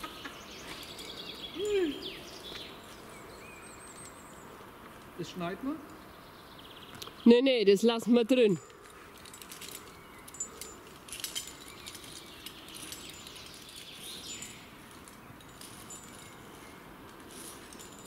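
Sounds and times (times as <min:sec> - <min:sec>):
light clicks and clinks: 0:03.8 - 0:04.4, 0:08.6 - 0:18.0.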